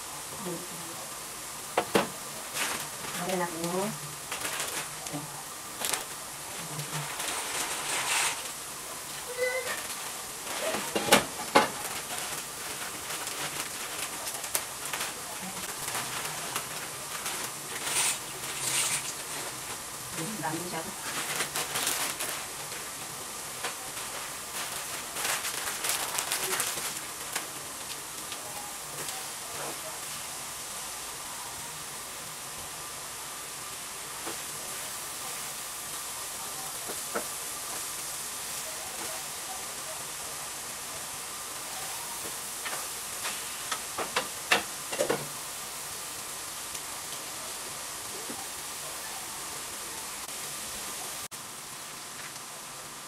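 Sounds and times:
meat sauce sizzling in a skillet: 0:00.0 - 0:53.0
spatula scraping a pan: 0:07.0 - 0:08.5, 0:17.8 - 0:19.2.

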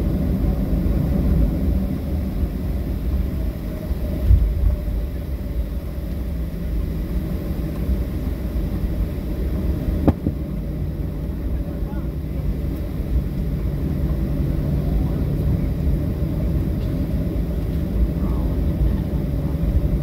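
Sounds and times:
airplane cabin engine rumble: 0:00.0 - 0:20.0
dull thump: 0:10.0 - 0:10.4.

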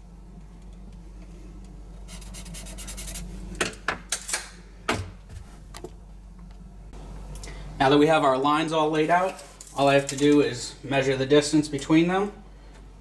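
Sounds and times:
marker scratching on wood: 0:02.1 - 0:03.2.

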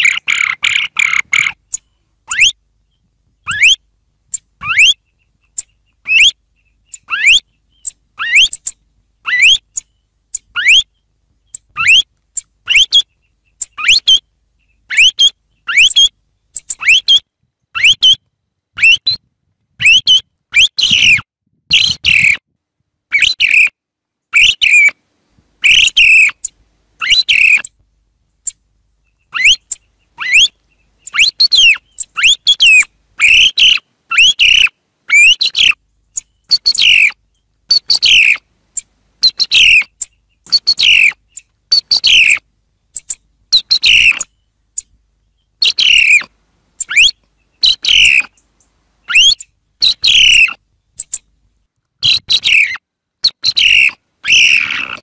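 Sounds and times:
song thrush singing: 0:00.0 - 0:22.5, 0:23.1 - 0:55.0.

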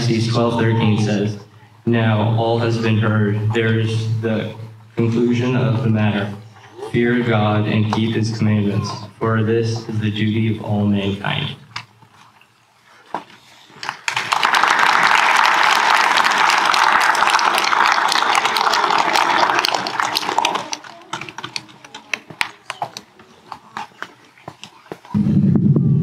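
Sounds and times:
audience applauding: 0:13.8 - 0:23.1.

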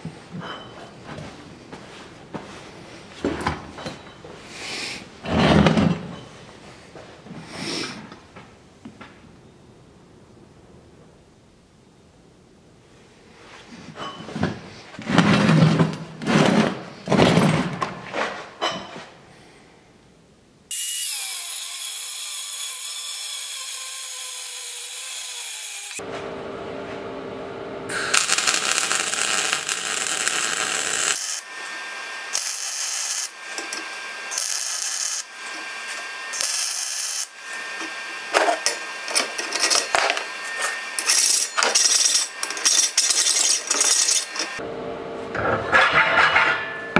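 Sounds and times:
loud strokes on steel: 0:20.7 - 0:26.0, 0:27.9 - 0:44.6
power tool running: 0:20.7 - 0:26.9, 0:27.9 - 0:44.7.

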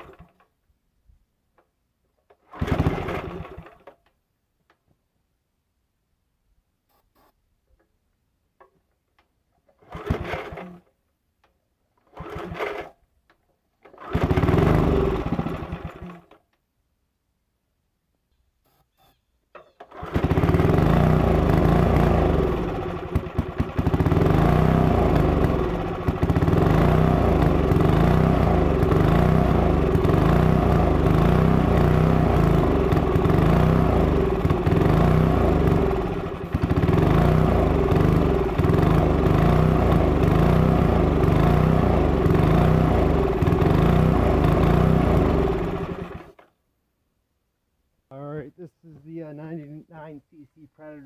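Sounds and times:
small engine surging and faltering: 0:02.5 - 0:03.7, 0:14.0 - 0:16.2, 0:19.8 - 0:46.4.

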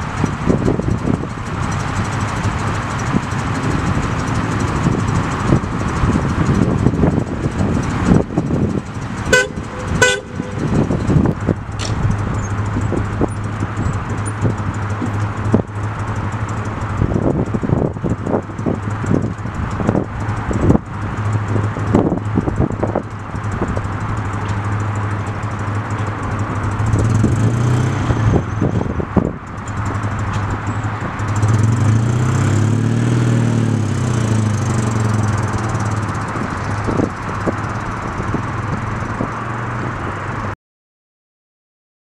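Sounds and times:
car engine running: 0:00.0 - 0:40.5
sharp thumps: 0:09.3 - 0:15.8.

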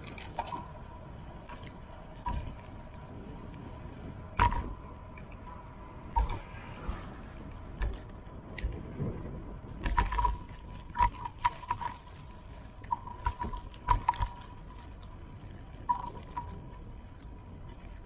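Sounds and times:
low rumble: 0:00.0 - 0:18.0
knocks and rattles on bumpy ground: 0:01.4 - 0:03.5, 0:04.2 - 0:05.5, 0:07.7 - 0:18.0.

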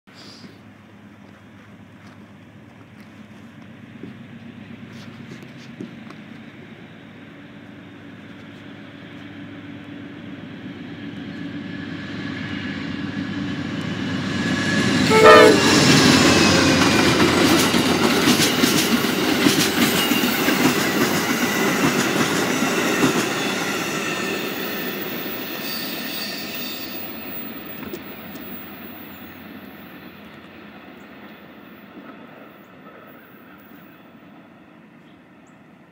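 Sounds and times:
diesel locomotive passing: 0:00.2 - 0:35.9
train horn: 0:14.9 - 0:16.8
wheels clicking over rail joints: 0:15.9 - 0:23.3.

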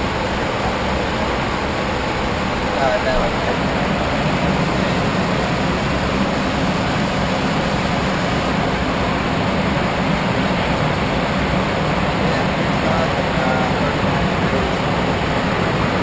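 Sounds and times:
rush of air in cockpit: 0:00.0 - 0:16.0.

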